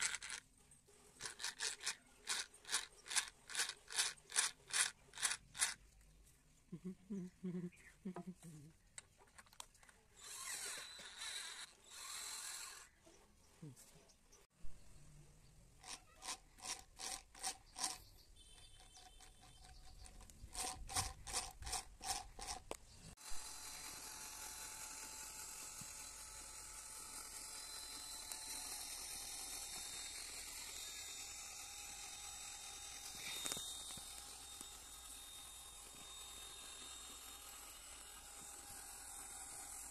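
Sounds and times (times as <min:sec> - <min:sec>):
chains and wheels whining: 0:00.0 - 0:00.4, 0:10.2 - 0:12.9, 0:15.8 - 0:22.7, 0:23.4 - 0:39.9
cordless drill running: 0:00.0 - 0:00.4, 0:01.2 - 0:05.8, 0:10.2 - 0:12.9, 0:15.8 - 0:18.0, 0:18.8 - 0:39.9.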